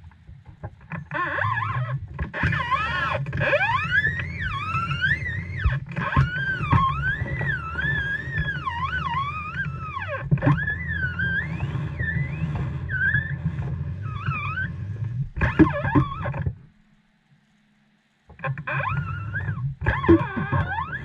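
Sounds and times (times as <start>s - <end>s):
hydraulic pump whining: 2.5s - 16.8s.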